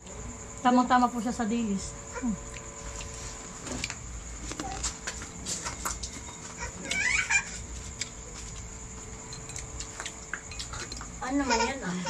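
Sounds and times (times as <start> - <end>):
wavering animal call: 6.6 - 7.6.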